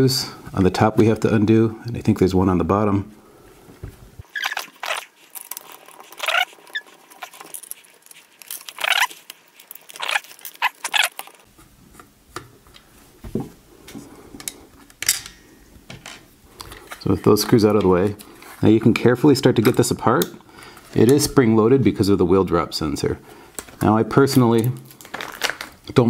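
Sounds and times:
screws squeaking in plastic: 0:04.2 - 0:11.5.

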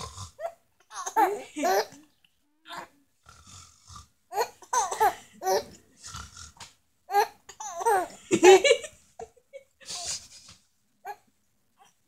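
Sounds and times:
baby laughing and babbling: 0:00.4 - 0:02.9, 0:04.3 - 0:05.8, 0:07.1 - 0:08.2.

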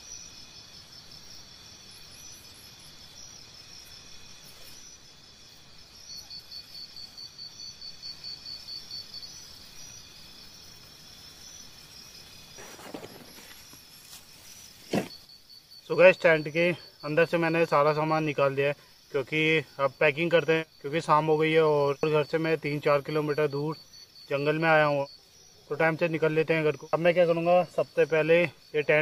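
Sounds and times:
insects chirping: 0:00.0 - 0:29.0
brief rustle: 0:12.6 - 0:15.2.

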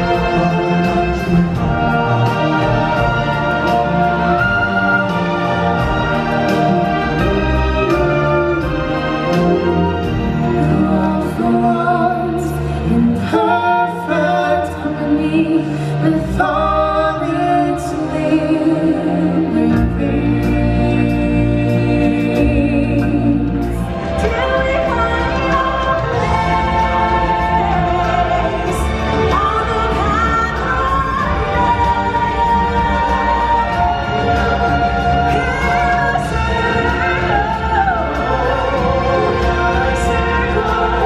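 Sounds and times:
group of voices singing: 0:00.0 - 0:41.0
loud backing music: 0:00.0 - 0:41.0.

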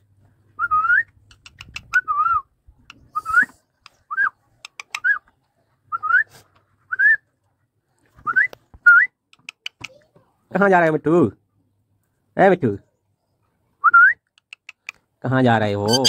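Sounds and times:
small sharp clicks: 0:01.1 - 0:02.0, 0:04.6 - 0:05.1, 0:09.3 - 0:10.0, 0:14.3 - 0:15.0.

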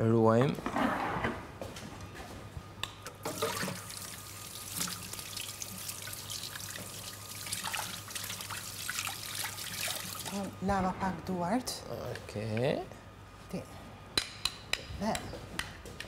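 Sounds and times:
tap water running into sink: 0:03.2 - 0:10.3.

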